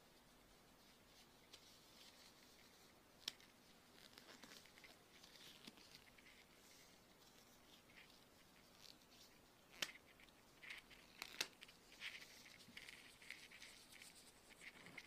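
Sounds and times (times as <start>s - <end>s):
rubber gloves rubbing and squeaking: 0.0s - 15.0s
rubber glove snapping: 9.7s - 11.7s.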